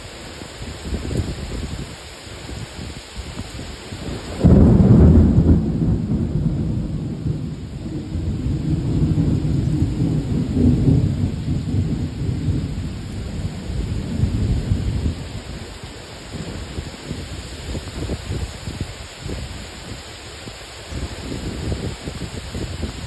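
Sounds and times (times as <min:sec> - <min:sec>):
heavy rain: 0:00.0 - 0:23.0
thunder rumbling: 0:04.0 - 0:19.9.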